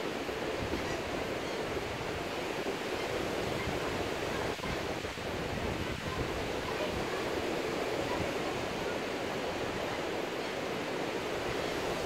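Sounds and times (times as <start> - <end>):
wind noise: 0.3 - 10.0.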